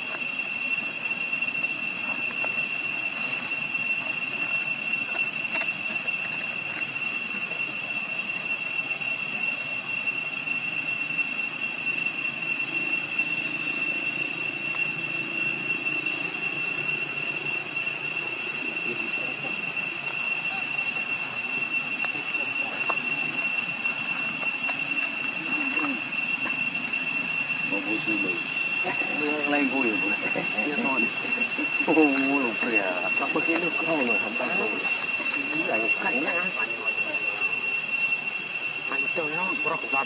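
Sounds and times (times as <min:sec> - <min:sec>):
steady high-pitched whine: 0:00.0 - 0:40.0.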